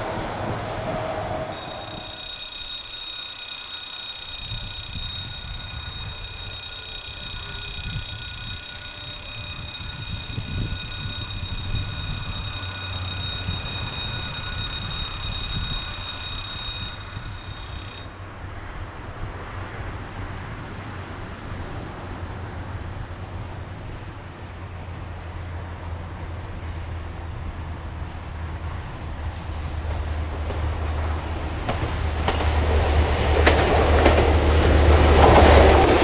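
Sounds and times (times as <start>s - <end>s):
low wind rumble: 0.0s - 2.1s, 4.4s - 26.6s
level crossing warning tone: 1.4s - 18.2s, 33.4s - 36.0s.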